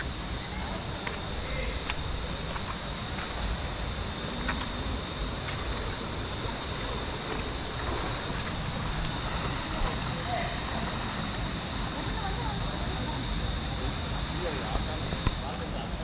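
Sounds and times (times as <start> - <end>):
stream water flowing: 0.0 - 15.4.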